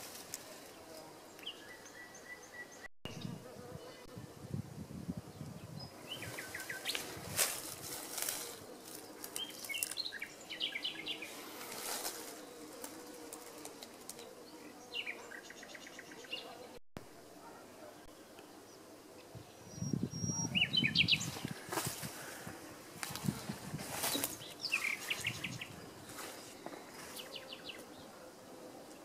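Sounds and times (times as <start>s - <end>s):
small birds chirping: 5.2s - 16.8s, 17.4s - 29.0s.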